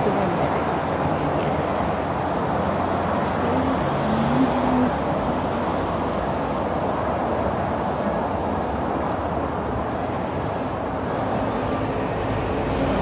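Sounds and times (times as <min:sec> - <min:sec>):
road traffic noise: 0:00.0 - 0:13.0.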